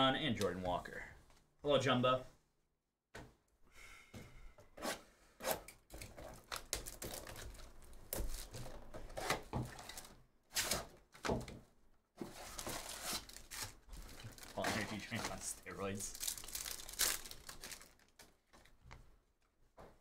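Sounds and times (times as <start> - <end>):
foil packs rustling: 12.2 - 18.7.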